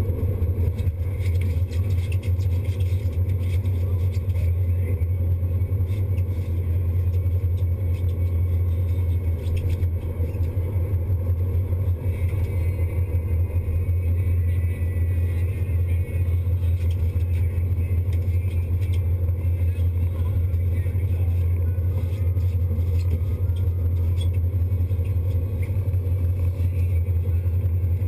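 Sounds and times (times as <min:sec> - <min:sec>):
boat engines droning: 0:00.0 - 0:28.0.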